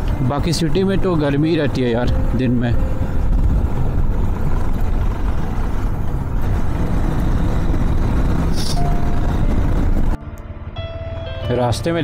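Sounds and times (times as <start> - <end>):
motorcycle engine riding: 0.0 - 10.2
wind rushing over microphone: 2.9 - 10.2.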